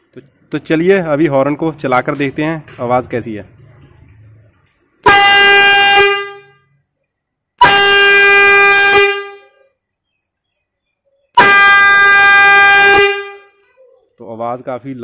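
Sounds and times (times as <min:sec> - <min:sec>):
air horn blasts: 0:05.0 - 0:06.7, 0:07.6 - 0:09.6, 0:11.4 - 0:13.6.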